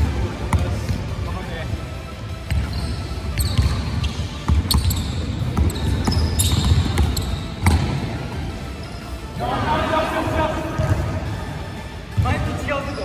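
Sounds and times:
shoes squeaking on floor: 2.4 - 8.0, 8.7 - 9.2, 12.8 - 13.0.

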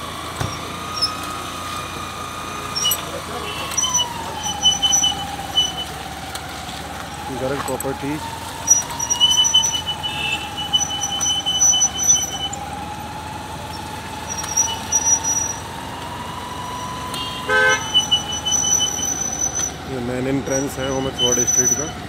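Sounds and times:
street traffic: 0.0 - 22.0
vehicle horn toot: 2.7 - 6.0, 8.7 - 12.6, 14.2 - 15.6, 16.8 - 19.8, 20.4 - 22.0.

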